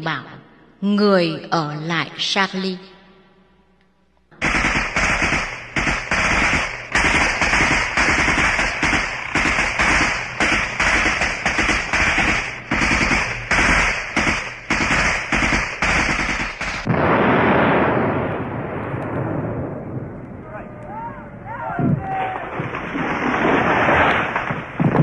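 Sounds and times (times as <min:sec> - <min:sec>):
continuous heavy noise: 0:04.3 - 0:16.9
gunfire shots: 0:04.4 - 0:18.6.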